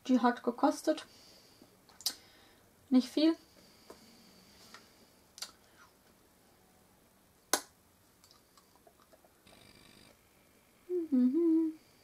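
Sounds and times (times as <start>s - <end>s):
woman humming: 10.9s - 11.9s.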